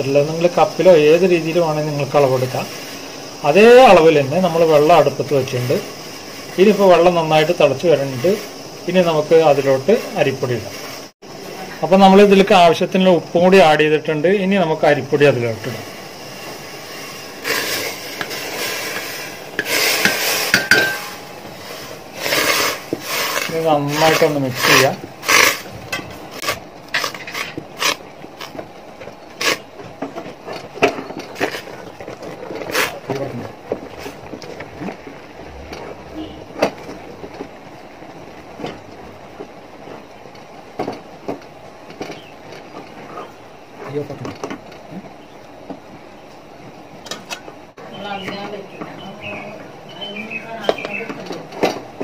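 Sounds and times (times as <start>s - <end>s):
wooden spatula scraping a pot: 17.2s - 28.5s
metallic clink: 19.6s - 21.4s.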